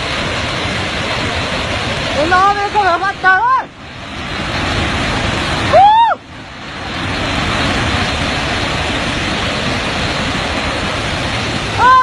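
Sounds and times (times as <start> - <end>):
flood water rushing: 0.0 - 12.0
person yelling: 5.7 - 6.2, 11.8 - 12.0.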